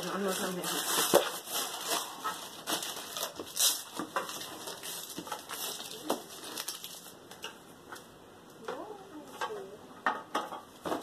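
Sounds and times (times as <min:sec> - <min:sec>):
wrapping paper tearing and crinkling: 0:00.0 - 0:07.2.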